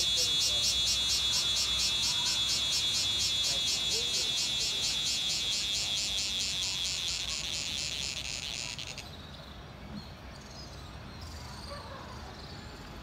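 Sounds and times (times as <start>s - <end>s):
insect pulsing buzz: 0.0s - 9.0s
faint background noise: 0.0s - 13.0s.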